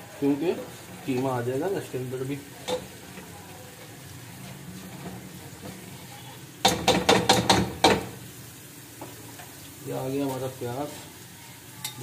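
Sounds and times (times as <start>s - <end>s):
paste sizzling in oil: 0.0s - 12.0s
knocks against cooking pot: 6.6s - 8.2s.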